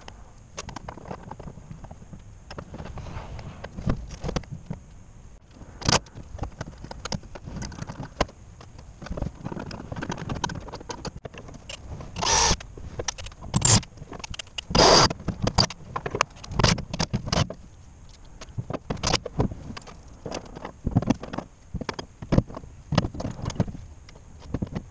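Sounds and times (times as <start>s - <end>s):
clicks and knocks of parts: 0.0s - 2.9s, 3.6s - 24.9s
loud bursts of noise: 14.7s - 15.1s.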